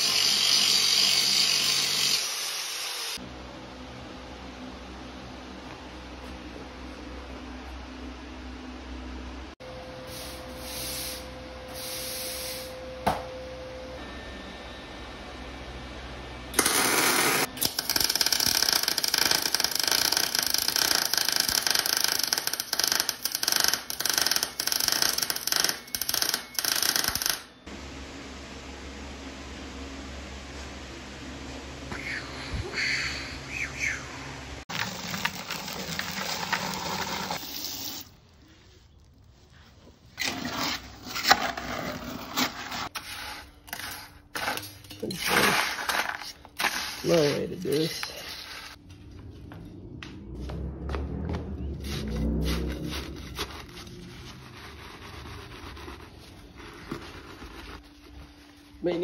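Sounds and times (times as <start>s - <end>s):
welding arc crackling: 16.6s - 27.5s
concrete scraping in bucket: 34.7s - 37.6s, 40.1s - 48.8s.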